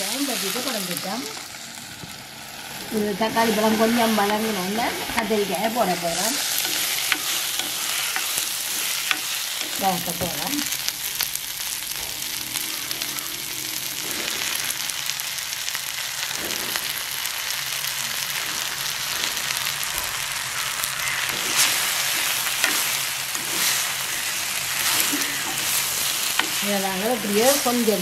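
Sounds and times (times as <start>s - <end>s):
food sizzling in oil: 0.0s - 28.0s
wooden spoon scraping and clattering: 3.8s - 10.7s, 21.3s - 28.0s.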